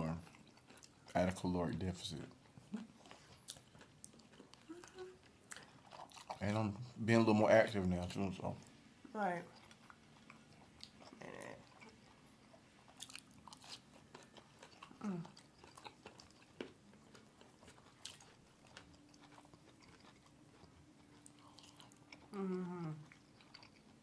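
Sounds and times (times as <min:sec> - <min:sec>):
chewing and eating: 0:00.0 - 0:08.8, 0:09.4 - 0:24.0
person humming: 0:04.7 - 0:05.2, 0:15.0 - 0:15.4, 0:22.3 - 0:23.0.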